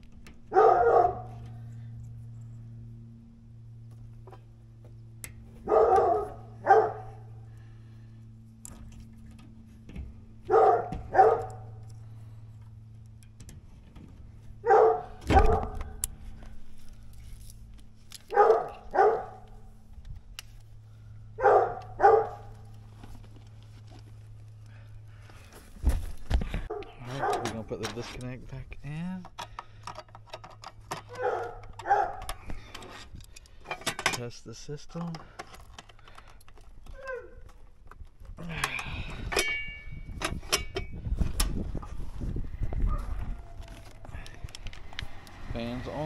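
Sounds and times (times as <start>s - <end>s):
dog barking: 0.5s - 1.4s, 5.6s - 7.2s, 10.5s - 11.7s, 14.6s - 15.9s, 18.3s - 19.4s, 21.4s - 22.5s, 26.7s - 27.5s, 31.1s - 32.3s.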